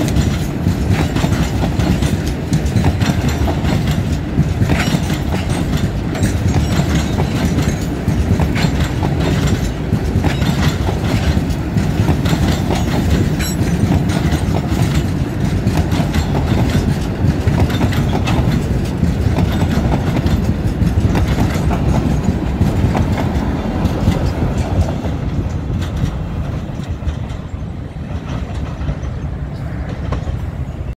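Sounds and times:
train wheels clattering over rail joints: 0.0 - 31.0.

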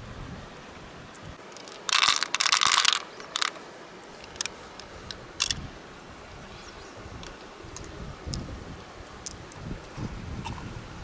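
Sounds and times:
shell crunching scrape: 1.5 - 3.6.

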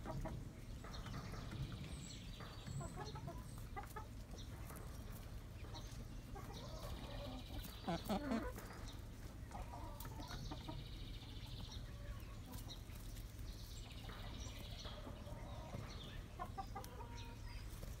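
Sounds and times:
hens clucking: 0.0 - 18.0.

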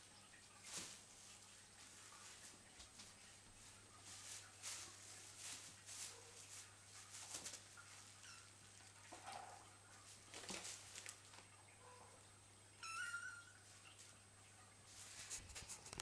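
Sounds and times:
plastic sheet crinkling: 4.0 - 8.1, 10.0 - 11.5, 14.9 - 16.0.

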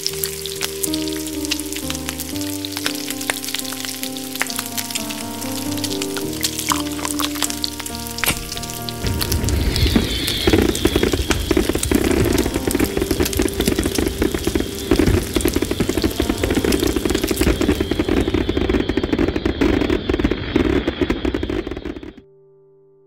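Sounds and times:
crackling and sizzling: 0.0 - 22.2
rush of fire: 4.4 - 22.2.

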